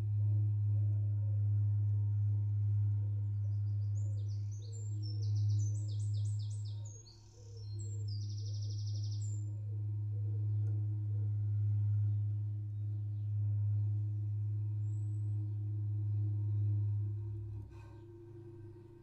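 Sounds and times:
cello low bowed note: 0.0s - 19.0s
small birds chirping: 3.4s - 9.5s.

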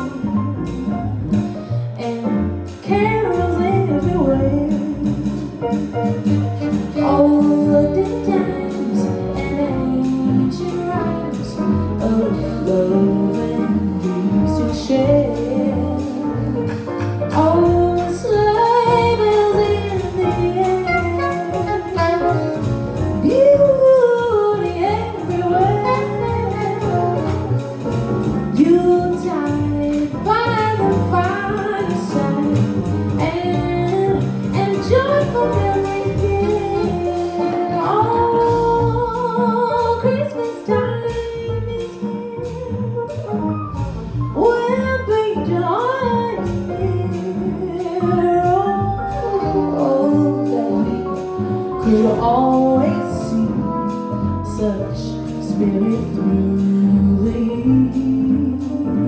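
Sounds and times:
alto saxophone: 0.0s - 45.4s, 46.2s - 59.0s
double bass: 0.0s - 59.0s
drums: 0.0s - 59.0s
piano: 0.0s - 59.0s
woman singing: 2.0s - 5.6s, 6.7s - 27.6s, 28.3s - 43.2s, 44.4s - 59.0s
trumpet: 10.6s - 28.9s.

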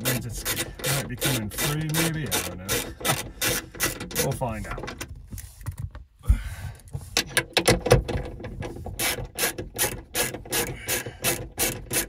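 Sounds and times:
ratchet-like clicking: 0.0s - 4.3s, 9.0s - 12.0s
screwdriver scraping a latch: 0.0s - 5.8s, 7.2s - 12.0s.

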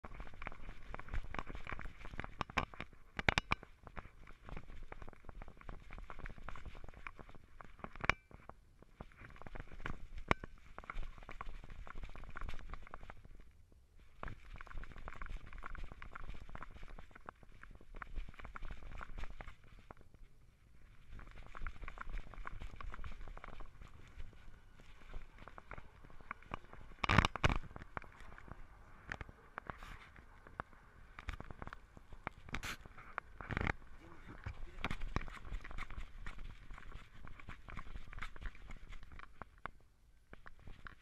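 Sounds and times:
camera rustling and clicking: 21.0s - 41.0s.

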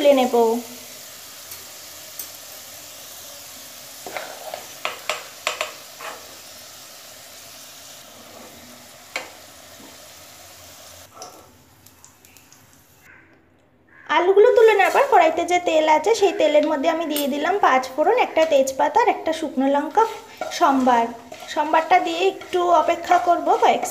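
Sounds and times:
potatoes sizzling in hot oil: 0.0s - 13.0s, 14.4s - 23.9s
metal spoon knocking on pan: 4.8s - 5.8s.

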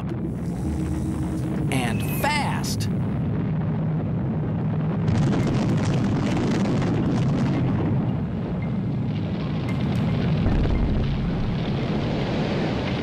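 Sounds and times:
crackling and rushing noise: 0.0s - 13.0s
deep rumble: 0.0s - 13.0s.

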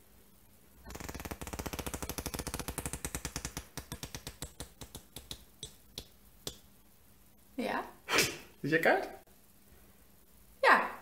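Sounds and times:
playing cards flicking: 0.8s - 6.2s.

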